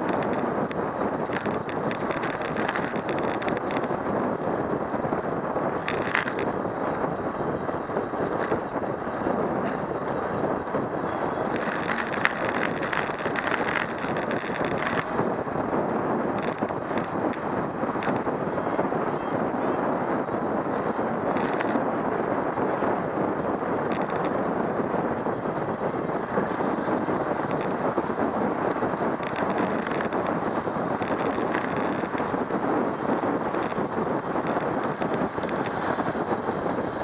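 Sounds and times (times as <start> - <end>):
short rattles and ticks: 0.0 - 6.6, 8.2 - 9.9, 11.4 - 15.4, 16.3 - 18.4, 20.7 - 21.8, 23.7 - 24.4, 26.1 - 37.0
tyre noise on asphalt: 0.0 - 37.0
wind rush over microphone: 0.0 - 37.0.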